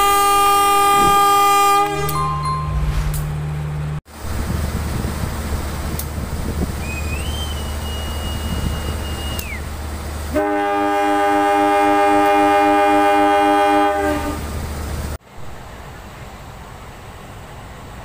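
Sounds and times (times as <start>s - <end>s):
locomotive air horn blast: 0.0s - 3.2s, 10.3s - 14.5s
high whistle blast: 1.8s - 3.3s.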